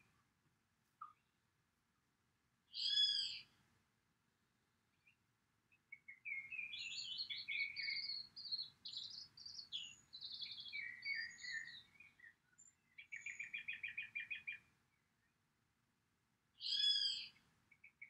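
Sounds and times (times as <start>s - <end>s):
songbird singing: 1.0s - 1.4s, 2.7s - 3.6s, 4.9s - 15.4s, 16.5s - 18.0s.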